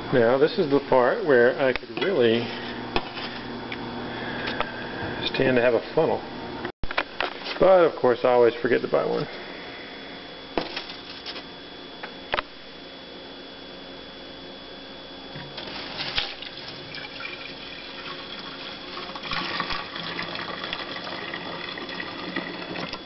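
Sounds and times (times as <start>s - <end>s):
liquid splashing into a flask: 15.6s - 23.0s.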